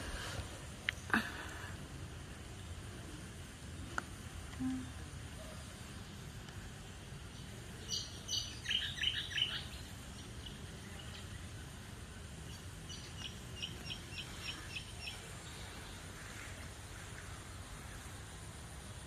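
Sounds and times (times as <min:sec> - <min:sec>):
low background noise: 0:00.0 - 0:19.0
bird chirping: 0:06.8 - 0:11.7, 0:12.4 - 0:16.0.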